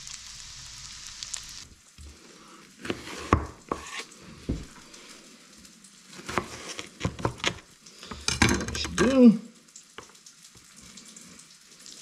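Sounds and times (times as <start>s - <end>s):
fish sizzling in a pan: 0.0s - 9.3s.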